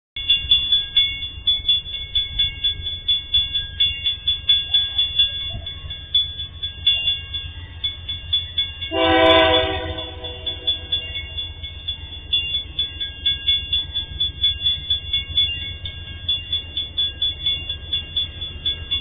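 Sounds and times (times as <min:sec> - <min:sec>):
level crossing bell ringing: 0:00.2 - 0:19.0
train horn blast: 0:08.9 - 0:10.7.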